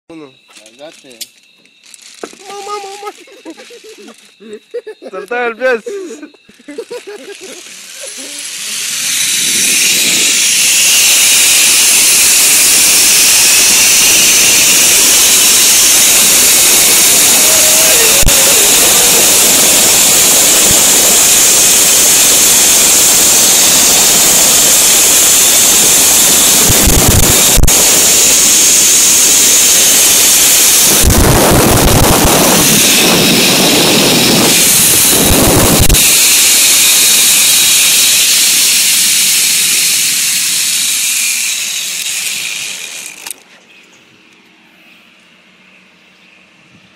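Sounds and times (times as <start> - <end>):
zip line pulleys hissing: 1.8 - 43.4
wind buffeting microphone: 30.6 - 36.3.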